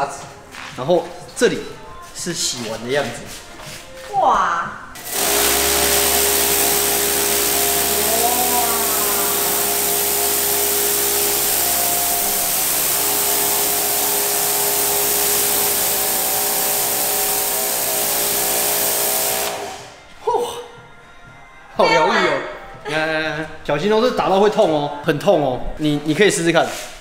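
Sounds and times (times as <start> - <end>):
pressure washer motor hum: 5.0 - 20.0
water jet spraying on concrete: 5.0 - 20.0.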